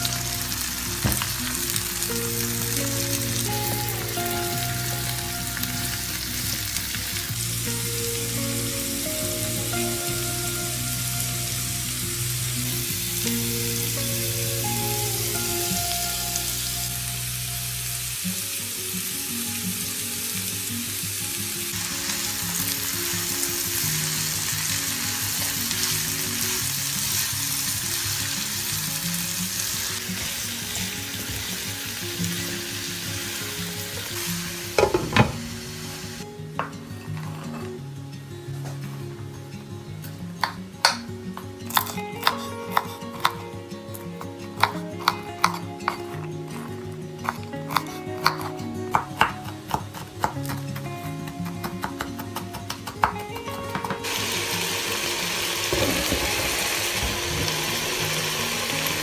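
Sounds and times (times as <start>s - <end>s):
vegetables sizzling in a pan: 0.0s - 36.2s, 53.8s - 59.0s
soft background music: 0.0s - 59.0s.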